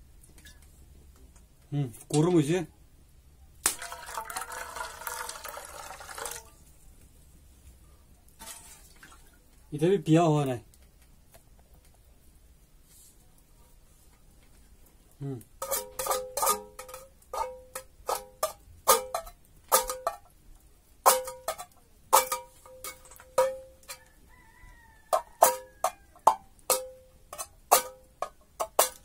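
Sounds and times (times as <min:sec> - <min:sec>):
metal pot clinking: 0:03.7 - 0:06.6, 0:15.6 - 0:20.4, 0:21.0 - 0:24.1, 0:25.1 - 0:29.0.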